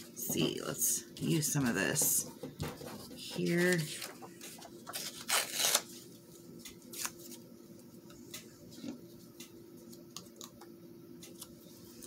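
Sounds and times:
paper rustling: 2.8s - 6.0s.

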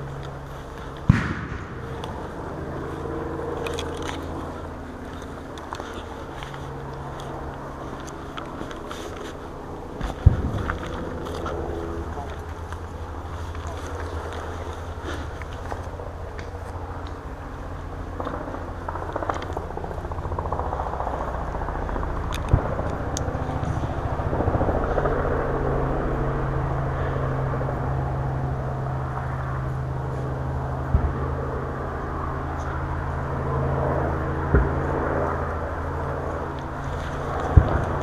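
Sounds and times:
helicopter drone: 0.0s - 38.0s.

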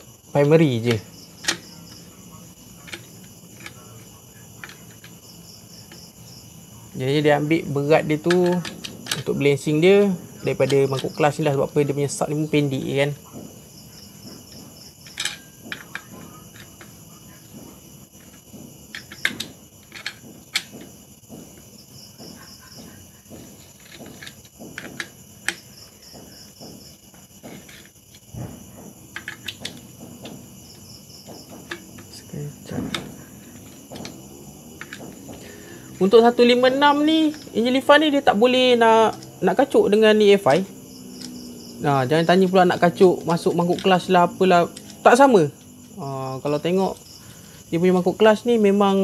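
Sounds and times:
crickets chirring: 0.0s - 49.0s
socket wrench clicking: 18.2s - 20.9s, 29.1s - 29.9s.

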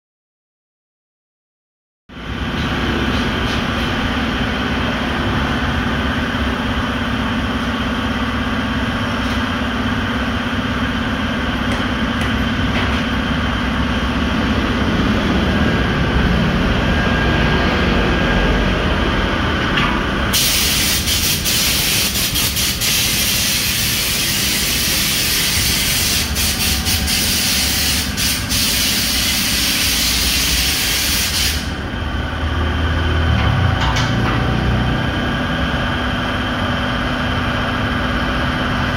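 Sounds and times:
machinery humming: 2.1s - 38.9s
compressed air hissing: 20.3s - 31.8s.

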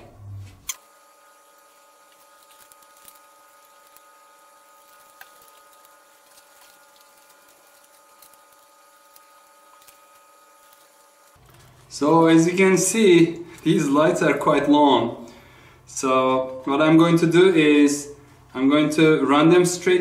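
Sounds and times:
faint steady hum: 0.0s - 20.0s
soft handling ticks and rustles: 4.7s - 12.0s.

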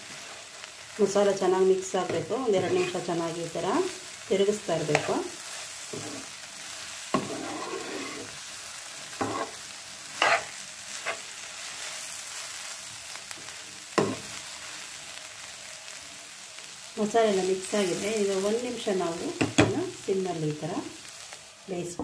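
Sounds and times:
food sizzling in a pan: 0.0s - 22.0s
spatula scraping and knocking pan: 2.1s - 3.1s, 5.9s - 6.3s, 7.1s - 8.4s, 9.2s - 9.6s, 10.2s - 11.3s, 14.0s - 14.3s.

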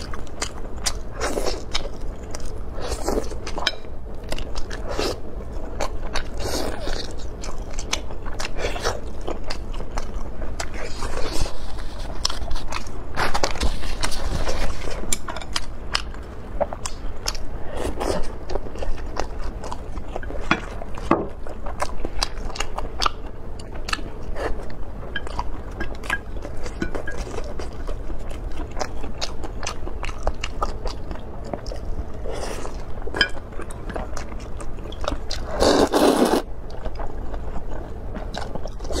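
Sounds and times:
chewing with wet mouth clicks: 0.0s - 11.1s, 15.0s - 39.0s
loud slurp of noodles: 35.6s - 36.4s.

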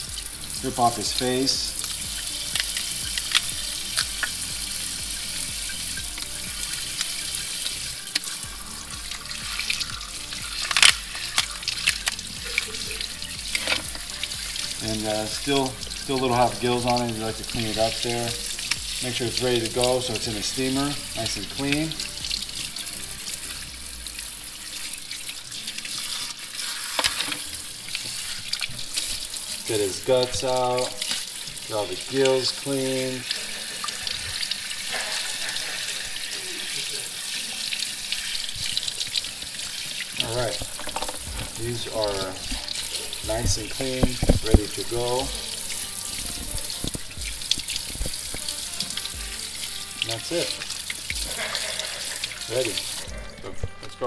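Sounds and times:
tap water spraying into sink: 0.0s - 53.8s
crab shell clicks and crackles: 2.5s - 4.3s, 10.4s - 12.2s.

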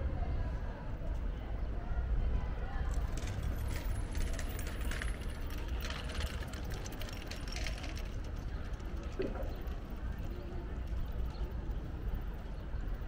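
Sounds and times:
low street rumble: 0.0s - 13.0s
light clinks and rattles: 2.9s - 11.6s.

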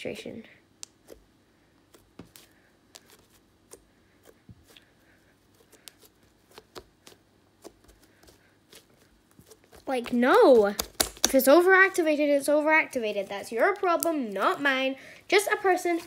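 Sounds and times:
slime clicking and popping: 10.3s - 11.4s.

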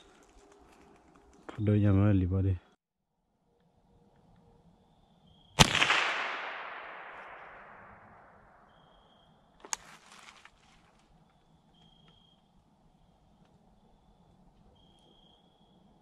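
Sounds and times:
clicks and rustles: 0.0s - 1.6s
rifle shot echoing: 5.6s - 8.8s.

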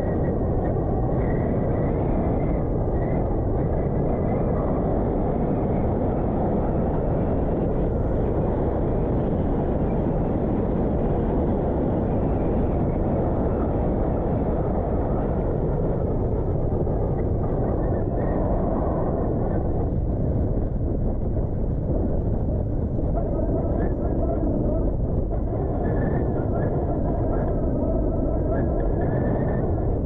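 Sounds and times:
wind buffeting microphone: 0.0s - 30.0s.

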